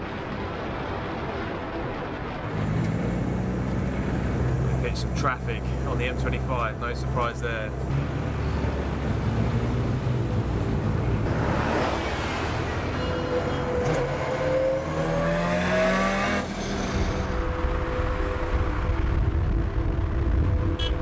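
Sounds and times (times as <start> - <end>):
car engine drone and tyre roar: 0.0 - 21.0
car accelerating alongside: 2.5 - 20.8
car rushing past: 11.0 - 19.4.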